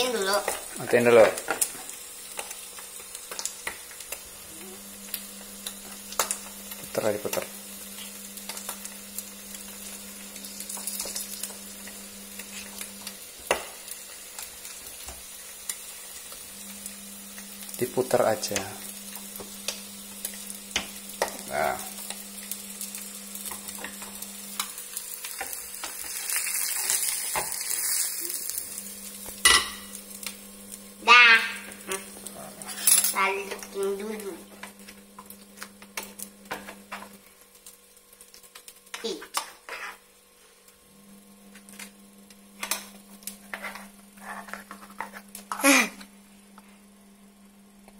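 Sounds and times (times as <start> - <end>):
egg sizzling in hot oil: 0.0 - 46.8
steady low hum: 15.9 - 24.8
pan clicks and scrapes: 43.4 - 45.6.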